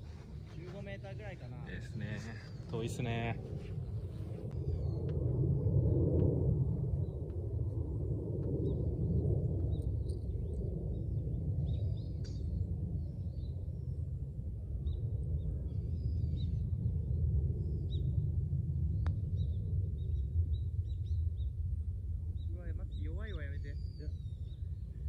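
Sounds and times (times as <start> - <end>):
small birds chirping: 0.0 - 3.4, 22.3 - 25.0
wind rumble on microphone: 0.0 - 25.0.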